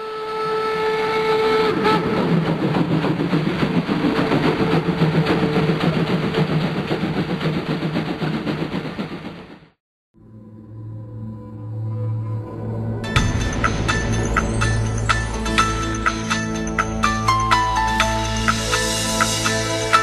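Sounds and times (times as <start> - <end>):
steam whistle: 0.0 - 2.5
steam locomotive exhaust chuffs: 0.4 - 9.8, 13.1 - 20.0.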